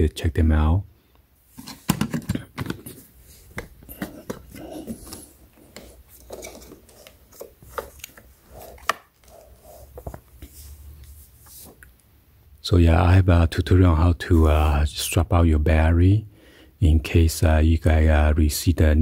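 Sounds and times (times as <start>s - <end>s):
knocks and rubbing on plastic case: 1.6s - 6.7s.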